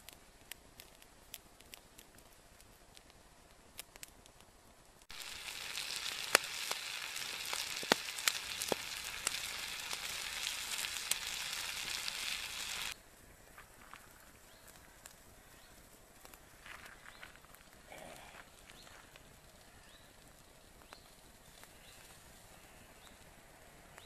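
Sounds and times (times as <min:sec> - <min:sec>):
food sizzling in a frying pan: 0:05.1 - 0:13.0.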